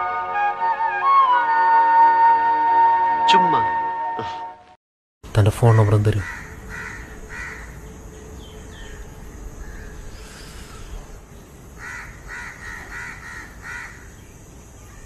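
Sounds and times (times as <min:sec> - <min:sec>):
faint steady hum: 0:05.3 - 0:15.0
bird calling: 0:05.5 - 0:15.0.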